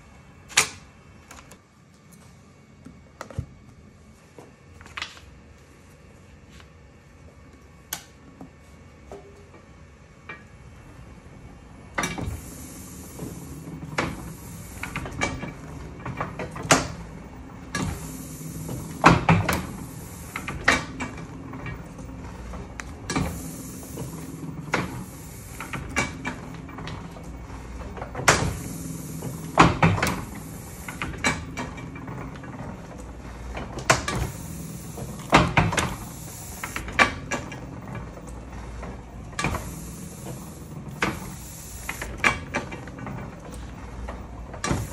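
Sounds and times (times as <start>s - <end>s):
letterpress clanking and clicking: 11.9s - 44.9s.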